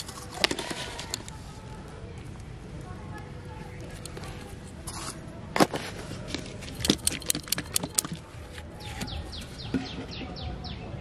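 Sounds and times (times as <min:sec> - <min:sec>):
sharp clicks and clinks: 0:06.4 - 0:08.3.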